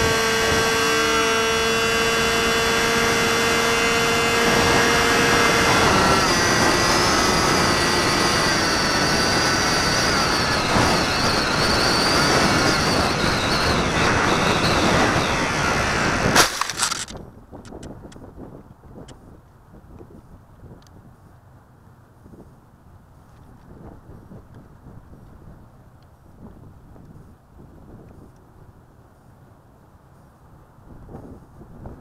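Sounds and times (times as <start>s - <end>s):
electric motor and propeller whining: 0.0s - 18.2s.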